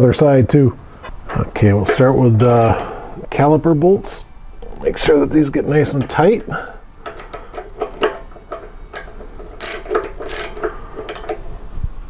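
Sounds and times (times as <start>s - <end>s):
socket ratchet clicking: 1.9s - 2.9s, 5.9s - 6.4s, 7.0s - 11.4s.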